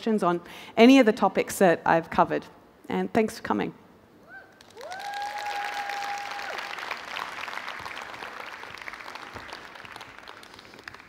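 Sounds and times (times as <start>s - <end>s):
person whooping: 4.2s - 6.7s
audience applauding: 4.6s - 11.0s.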